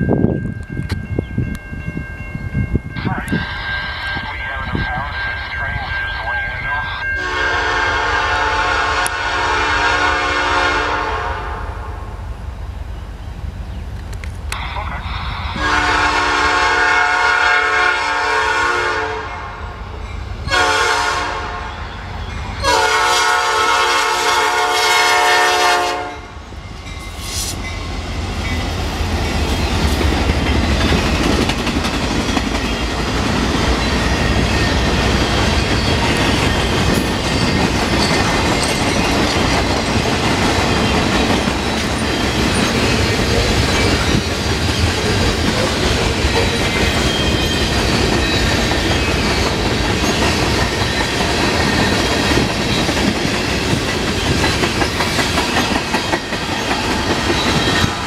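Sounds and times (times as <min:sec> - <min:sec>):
locomotive air horn blasts: 0:07.2 - 0:11.8, 0:15.6 - 0:19.6, 0:20.5 - 0:21.7, 0:22.6 - 0:26.3
train wheels clacking on rails: 0:26.8 - 0:58.0.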